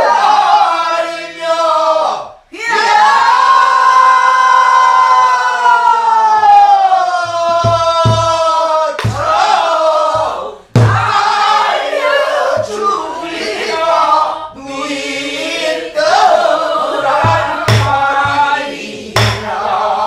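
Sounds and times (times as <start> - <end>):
barrel drum thumps and knocks: 7.5 - 8.4, 10.2 - 11.2, 17.2 - 18.5, 19.2 - 19.6.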